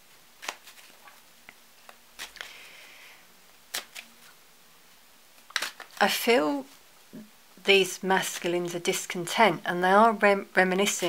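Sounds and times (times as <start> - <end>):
cards clicking while shuffled: 0.4 - 1.2, 1.8 - 2.6, 3.7 - 4.3, 5.4 - 6.0
cards rustling: 0.4 - 1.2, 1.8 - 2.7, 3.7 - 4.4, 5.4 - 6.1.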